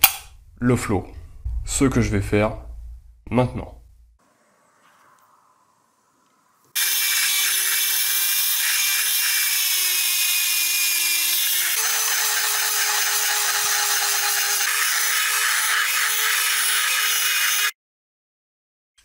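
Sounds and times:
rotary tool grinding metal: 6.8 - 17.8.

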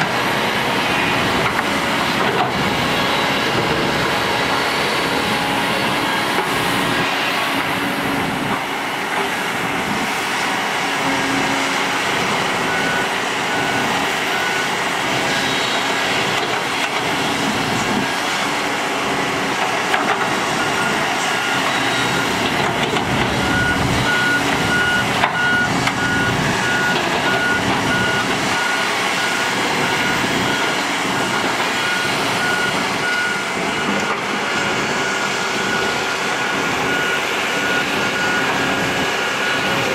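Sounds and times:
construction machinery diesel engines: 0.0 - 39.9
reversing alarm beeping: 0.8 - 8.6, 11.0 - 19.2, 19.9 - 39.9.

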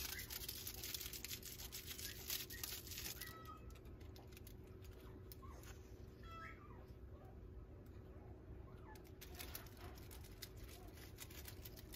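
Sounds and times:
kittens rustling and scratching: 0.0 - 6.2, 8.7 - 11.9.

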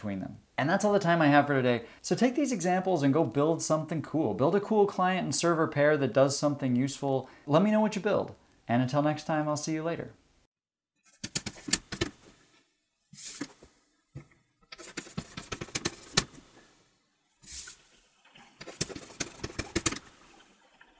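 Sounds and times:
chalk tapping and scratching on blackboard: 11.1 - 12.1, 14.7 - 16.4, 18.6 - 20.0.

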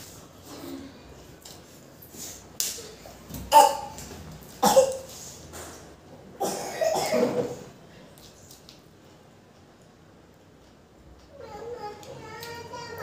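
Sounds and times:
man coughing while eating: 3.5 - 3.9, 4.6 - 5.1, 6.4 - 7.7.

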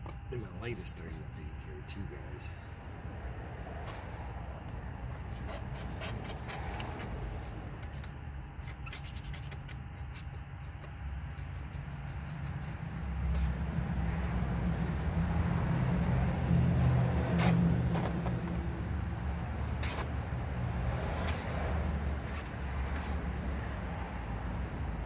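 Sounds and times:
razor blade scraping a sticker: 5.1 - 13.6, 16.4 - 18.6, 19.6 - 21.5.

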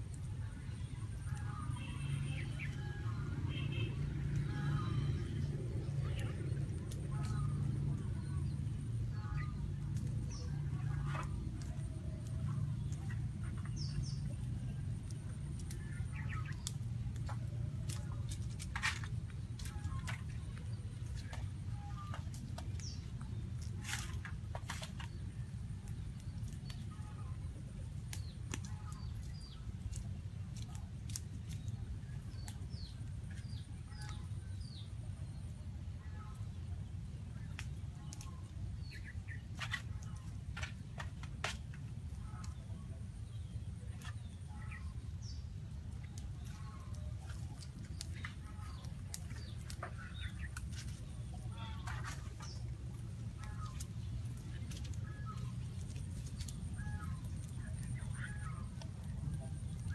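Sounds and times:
birds chirping: 0.0 - 59.9
low rumble: 0.0 - 59.9
sharp clicks and crackles: 2.4 - 34.9, 37.4 - 59.9.

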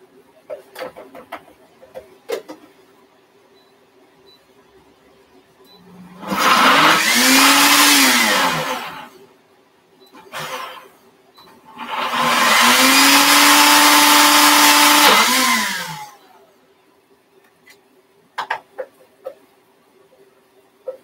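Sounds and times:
blender motor running: 6.2 - 9.1, 11.8 - 16.2.

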